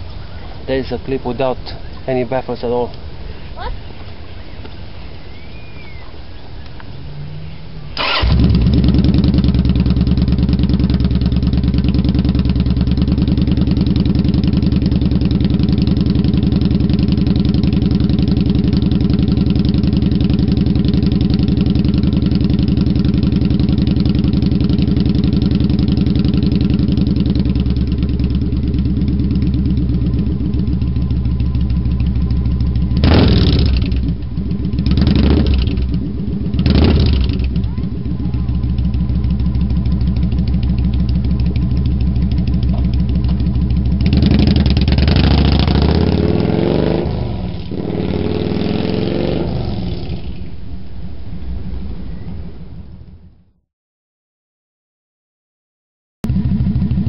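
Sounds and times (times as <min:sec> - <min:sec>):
motorcycle engine revving: 0:06.9 - 0:50.6, 0:56.2 - 0:57.0
motorcycle engine cranking: 0:08.0 - 0:11.8
motorcycle engine idling: 0:08.0 - 0:46.2, 0:56.3 - 0:57.0.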